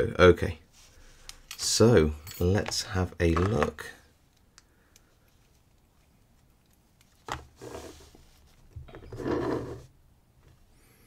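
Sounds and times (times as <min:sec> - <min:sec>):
rubbing and scraping: 0:07.5 - 0:09.9.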